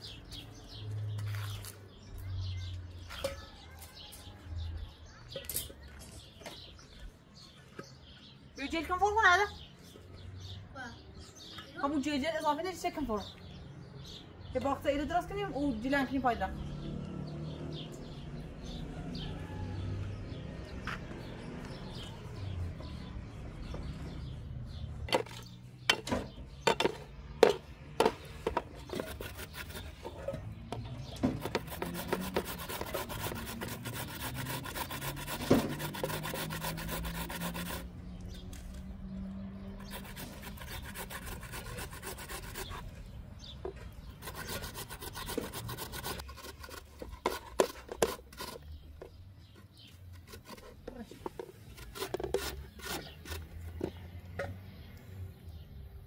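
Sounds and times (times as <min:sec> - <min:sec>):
potato rasping on metal grater: 0:31.4 - 0:37.9, 0:39.8 - 0:42.8.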